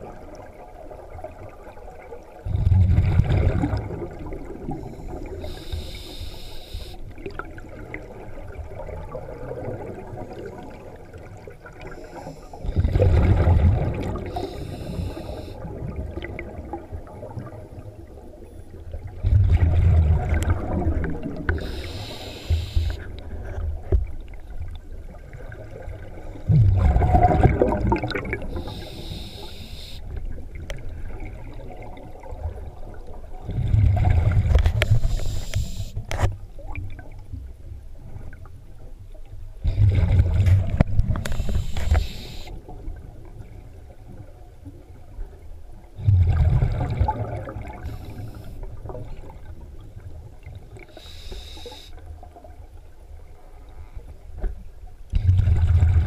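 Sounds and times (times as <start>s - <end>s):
bubbling exhale underwater: 2.4s - 5.6s, 11.9s - 17.3s, 19.2s - 23.1s, 26.5s - 29.6s, 33.4s - 35.8s, 39.6s - 42.9s, 46.0s - 49.5s, 55.1s - 56.0s
regulator hiss on inhale: 4.8s - 7.1s, 11.9s - 12.7s, 14.2s - 15.6s, 21.6s - 23.1s, 28.5s - 30.2s, 34.7s - 36.1s, 41.2s - 42.6s, 47.8s - 48.7s, 50.9s - 52.0s.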